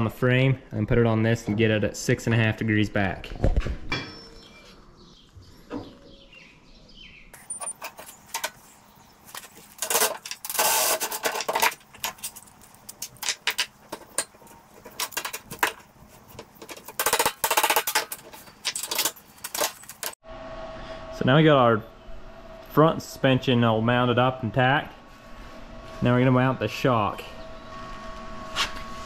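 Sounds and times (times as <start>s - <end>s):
welding crackling bursts: 9.3s - 14.3s
sharp metallic clicks and clinks: 16.4s - 20.2s.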